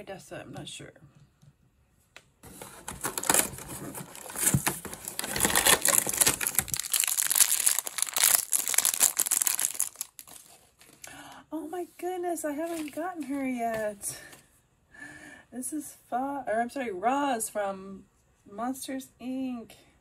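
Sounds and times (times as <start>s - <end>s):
plastic bag crinkling: 2.6s - 11.1s.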